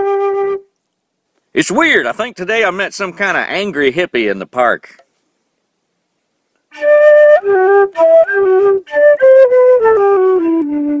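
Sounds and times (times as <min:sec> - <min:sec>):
solo flute playing: 0:00.0 - 0:00.8, 0:06.7 - 0:11.0.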